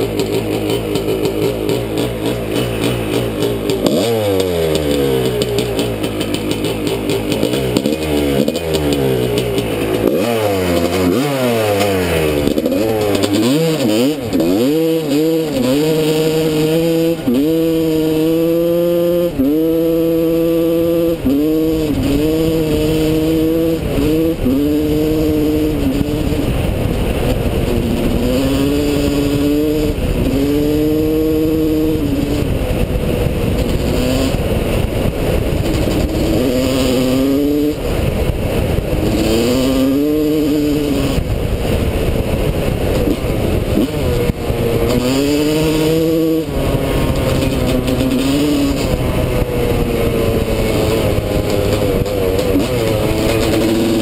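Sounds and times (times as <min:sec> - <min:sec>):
two-stroke motorcycle engine revving: 0:00.0 - 0:54.0.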